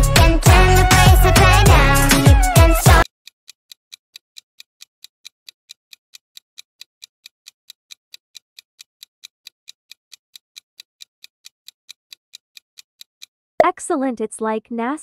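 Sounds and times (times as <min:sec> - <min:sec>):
clock ticking: 0:02.9 - 0:13.8.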